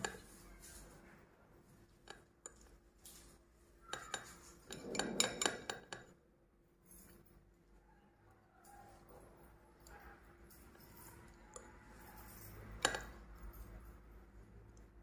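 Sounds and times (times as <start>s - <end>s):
fork scraping a plate: 2.5s - 6.0s
fork clinking: 3.8s - 6.1s.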